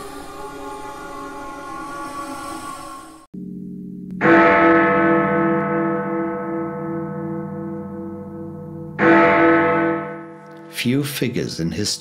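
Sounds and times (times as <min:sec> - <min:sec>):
deep bell tolling: 0:03.4 - 0:11.7.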